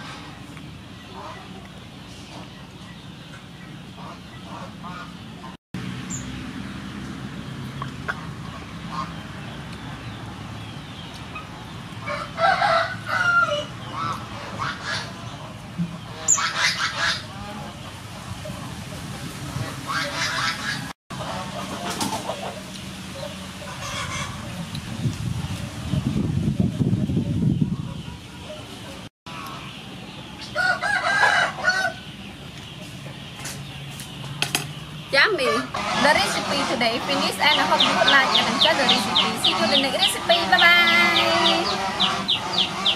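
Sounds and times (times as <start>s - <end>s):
rooster crowing: 12.0s - 13.7s, 30.6s - 32.1s.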